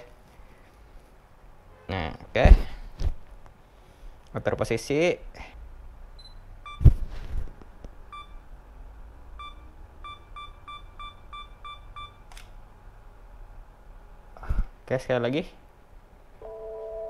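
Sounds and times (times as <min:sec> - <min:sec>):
self-timer beeps: 0:06.2 - 0:06.8, 0:08.1 - 0:08.4, 0:09.4 - 0:12.2
sharp click: 0:12.3 - 0:12.5.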